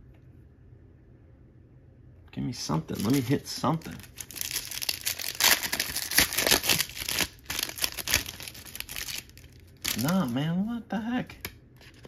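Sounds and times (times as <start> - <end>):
wrapper crinkling and tearing: 2.8 - 10.4.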